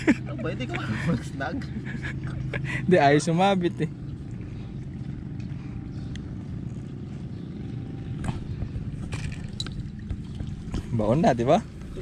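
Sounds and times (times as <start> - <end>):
low engine drone: 0.0 - 12.0.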